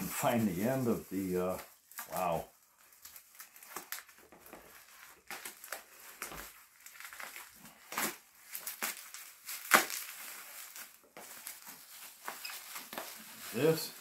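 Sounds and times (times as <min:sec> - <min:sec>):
plastic wrap crinkling: 0:00.0 - 0:14.0.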